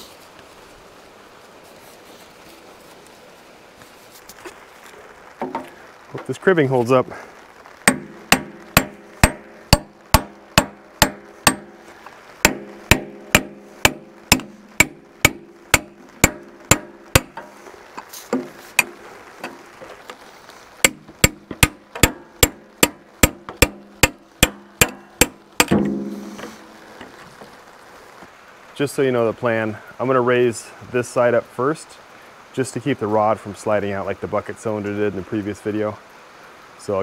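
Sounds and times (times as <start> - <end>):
hammer blows on steel: 7.9 - 11.8, 12.4 - 17.6.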